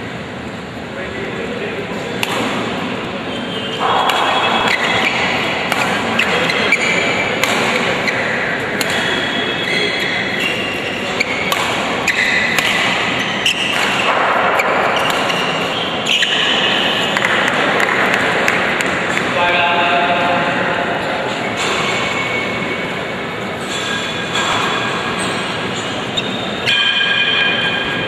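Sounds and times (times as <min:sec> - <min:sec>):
spectators chatting: 0:00.9 - 0:13.6, 0:15.6 - 0:23.7
racket striking shuttlecock: 0:02.2 - 0:03.0, 0:03.7 - 0:19.4, 0:23.6 - 0:25.5, 0:26.6 - 0:27.8
shoes squeaking on court floor: 0:03.2 - 0:18.3, 0:21.4 - 0:26.9.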